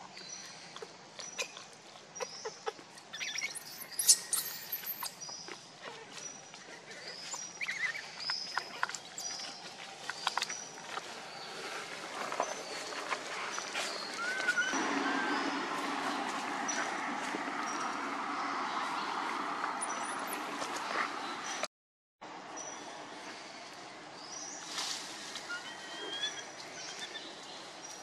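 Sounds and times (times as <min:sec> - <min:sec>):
monkey chirps and squeaks: 0:02.2 - 0:06.4, 0:07.2 - 0:09.5, 0:25.5 - 0:27.2
monkey high squeal: 0:03.2 - 0:05.1.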